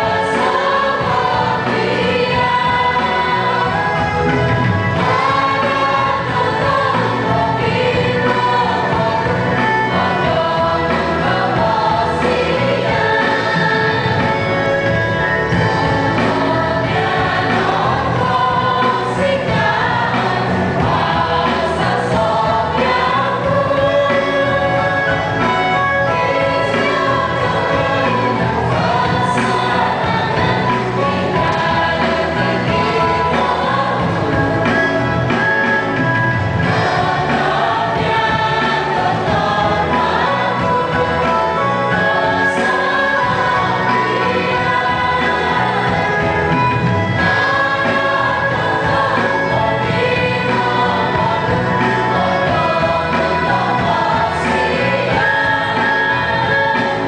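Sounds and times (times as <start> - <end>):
choir singing: 0.0 - 57.0.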